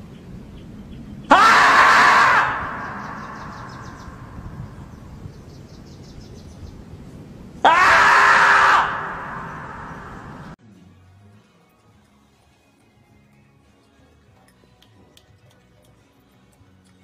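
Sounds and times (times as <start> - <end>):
human-like screams with echo: 1.3 - 4.6, 7.6 - 10.6.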